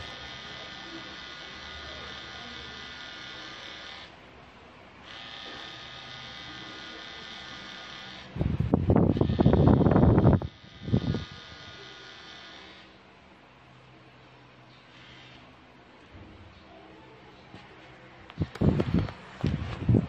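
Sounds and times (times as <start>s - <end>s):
tattoo machine buzzing: 0.0s - 4.2s, 5.0s - 13.1s, 14.8s - 15.7s, 18.2s - 19.6s.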